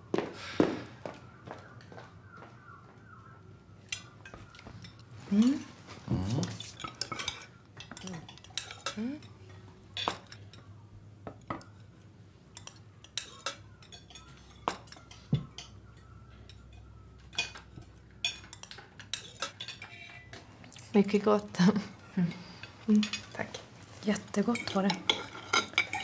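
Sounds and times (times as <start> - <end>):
cutlery clinking on china plates: 6.3 - 10.7, 12.6 - 20.4, 22.6 - 23.6, 24.2 - 26.0.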